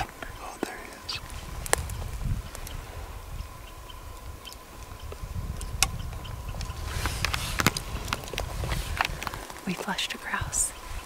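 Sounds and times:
branches snapping: 0.0s - 2.8s, 4.2s - 10.0s
camera handling rumble: 0.0s - 2.8s, 4.8s - 9.6s
rustling through branches: 0.0s - 11.0s.

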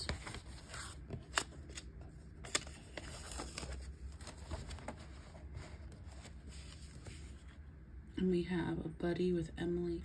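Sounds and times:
paper rustling: 0.0s - 7.6s.

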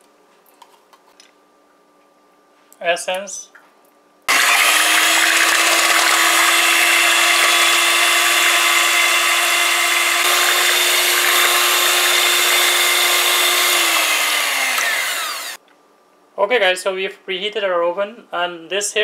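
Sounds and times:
electric hand mixer whining: 4.3s - 15.6s.

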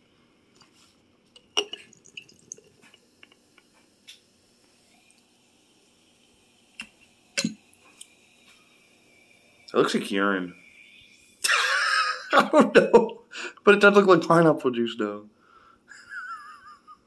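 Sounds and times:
liquid pouring into glass jar: 0.6s - 3.4s.

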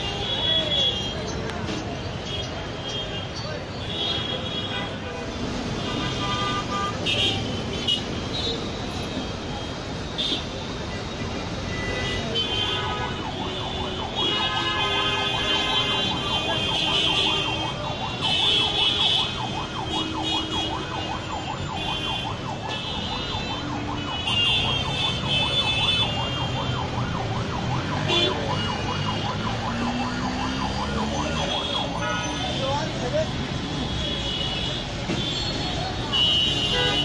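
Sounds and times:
street traffic noise: 0.0s - 37.0s
emergency siren warbling: 15.2s - 33.0s.

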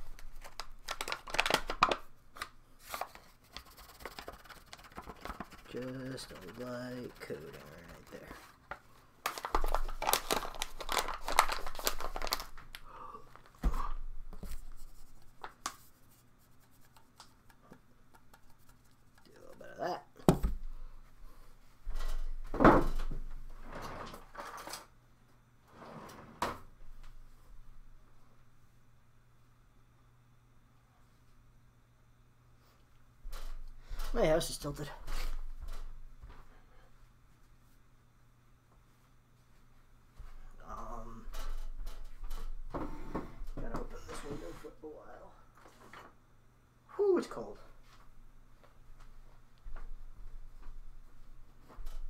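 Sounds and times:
paper bag crinkling: 0.0s - 8.5s, 9.2s - 13.6s.

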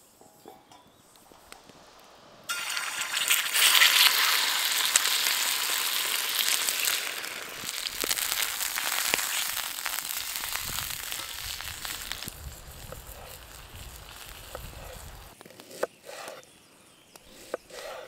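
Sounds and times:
frying hiss with crackles: 0.0s - 15.4s
food sizzling in a hot pan: 2.5s - 15.4s.

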